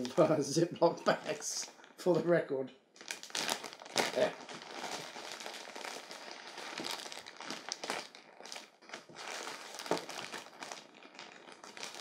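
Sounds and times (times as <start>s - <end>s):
plastic bag crinkling: 3.0s - 12.0s.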